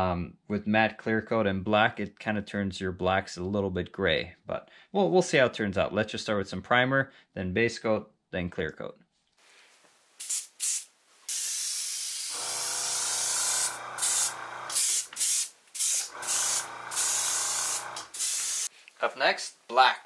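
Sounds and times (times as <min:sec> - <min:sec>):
airbrush spraying hiss: 0:10.2 - 0:18.7.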